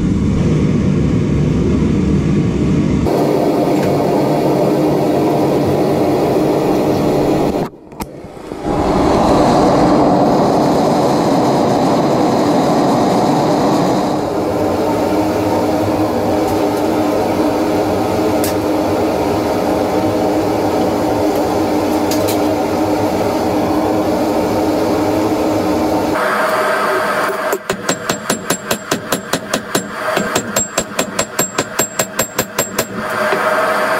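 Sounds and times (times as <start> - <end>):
gas forge burner rushing: 3.0 - 27.8.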